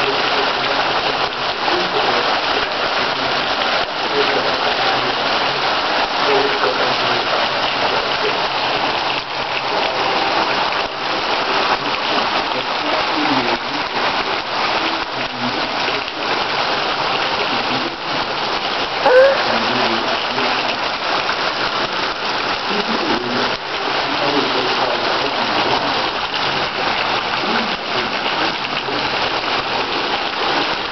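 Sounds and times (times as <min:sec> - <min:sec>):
heavy rain on flooded street: 0:00.0 - 0:30.9.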